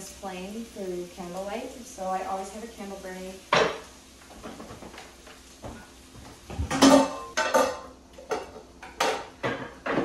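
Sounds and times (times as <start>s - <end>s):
pots and pans clinking: 3.5s - 10.0s.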